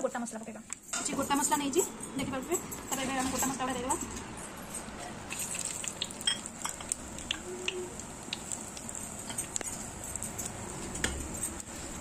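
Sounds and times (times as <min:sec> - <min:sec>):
spices sizzling in hot oil: 0:02.9 - 0:12.0.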